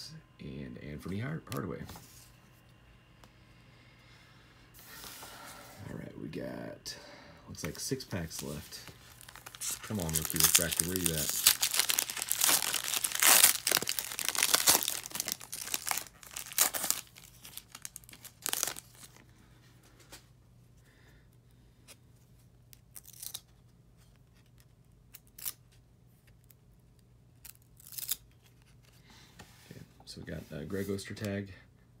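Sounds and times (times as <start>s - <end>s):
foil wrapper tearing and crinkling: 8.3s - 19.2s, 22.9s - 23.5s, 27.4s - 28.4s.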